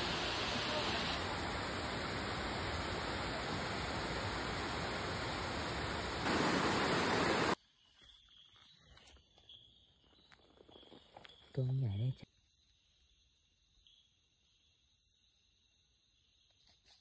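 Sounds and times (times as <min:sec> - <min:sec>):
water rushing over rocks: 0:00.0 - 0:07.6.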